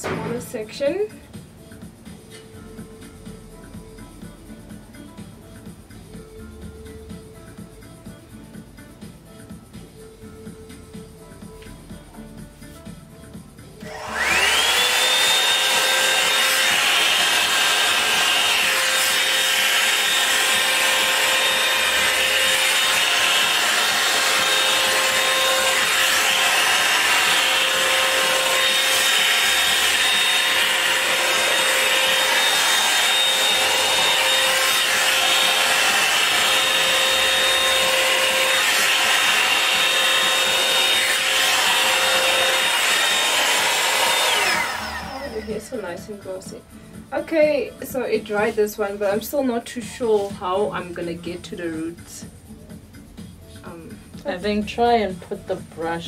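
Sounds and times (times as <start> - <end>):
hair dryer brush blowing and whining: 13.8 - 51.1.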